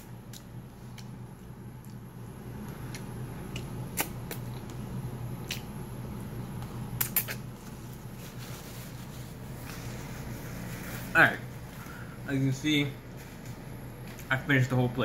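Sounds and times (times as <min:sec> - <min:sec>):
steady low hum: 0:00.0 - 0:15.0
person chewing with mouth smacks: 0:00.3 - 0:04.8, 0:05.4 - 0:05.8, 0:06.6 - 0:07.8.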